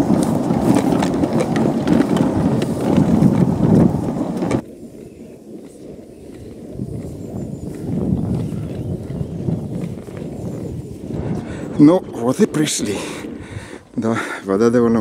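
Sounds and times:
boat scraping over ground: 0.0s - 8.2s.

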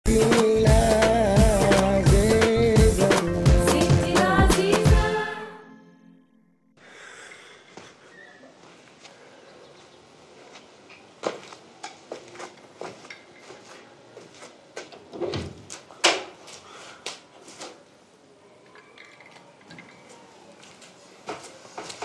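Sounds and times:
footsteps: 7.7s - 17.8s, 19.2s - 22.0s.

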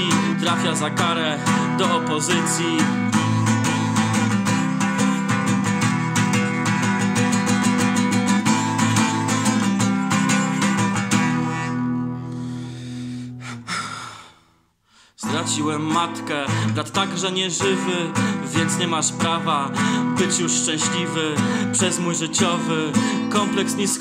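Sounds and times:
acoustic guitar strumming: 0.0s - 13.4s, 15.2s - 24.0s.

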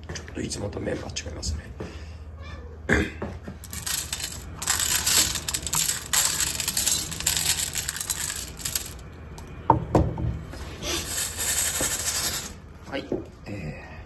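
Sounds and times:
dry cat food crackling: 3.7s - 9.0s.

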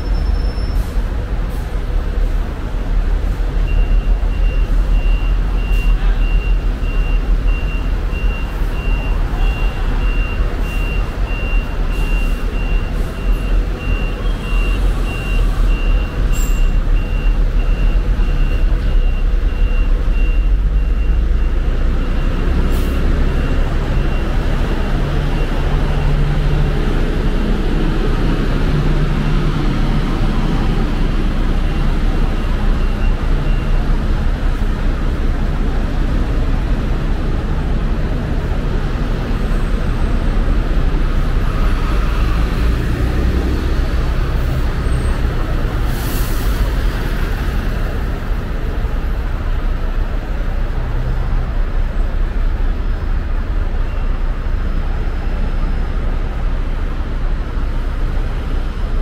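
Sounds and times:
heavy vehicle engine rumbling: 0.0s - 59.0s
traffic noise: 0.0s - 59.0s
reversing alarm beeps: 3.6s - 26.8s, 31.6s - 34.0s.

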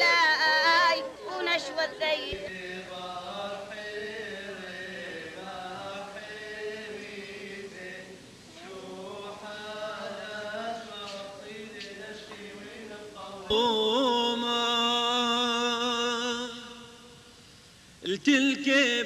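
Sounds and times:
group chanting: 0.0s - 14.1s.

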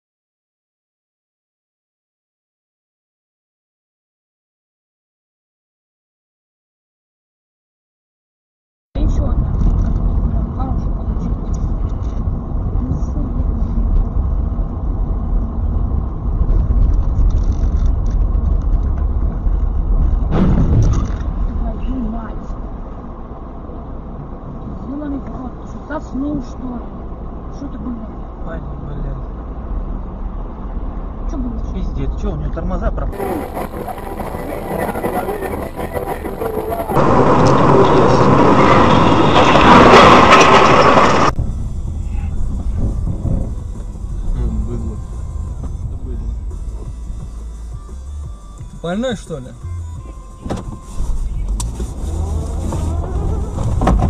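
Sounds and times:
car driving rumble: 9.0s - 54.0s
low road noise: 9.0s - 54.0s
car crash scraping and crunching: 19.6s - 21.6s, 33.1s - 44.1s, 50.6s - 54.0s.

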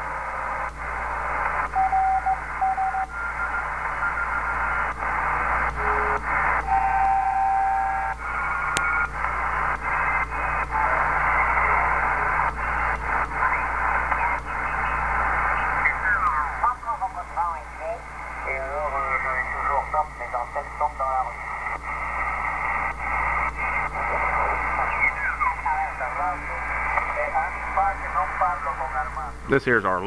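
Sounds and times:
low hum: 0.0s - 29.7s
radio static hiss: 0.0s - 30.0s
morse code beeps: 1.7s - 3.1s.

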